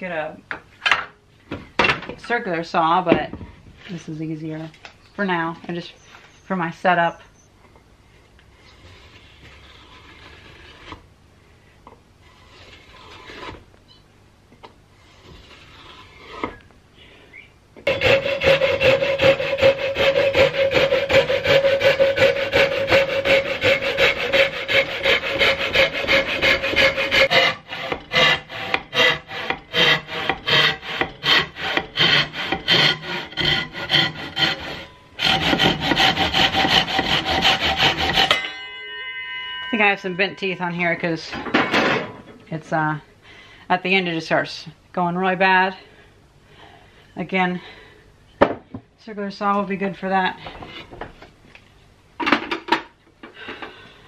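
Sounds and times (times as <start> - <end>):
hand saw cutting wood: 12.3 - 13.6, 17.9 - 38.4.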